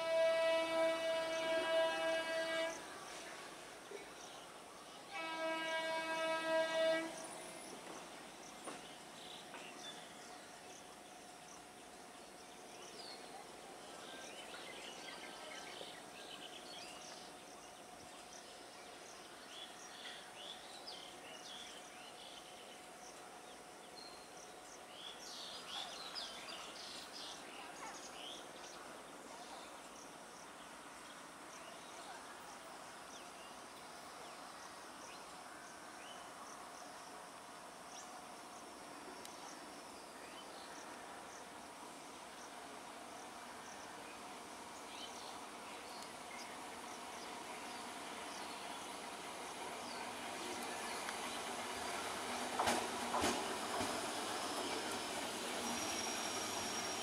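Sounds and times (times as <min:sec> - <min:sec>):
train horn blast: 0:00.0 - 0:03.2, 0:05.1 - 0:07.4.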